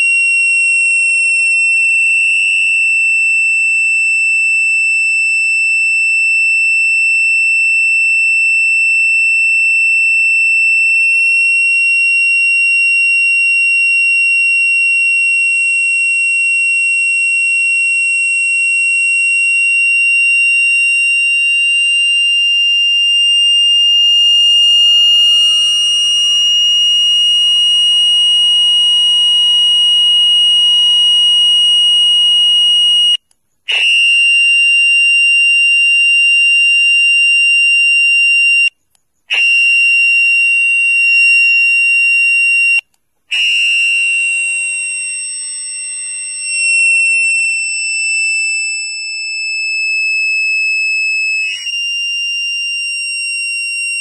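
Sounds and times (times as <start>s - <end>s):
steady high-pitched tone: 0.0s - 33.8s
sliding electronic tones: 0.0s - 38.7s, 39.3s - 54.0s.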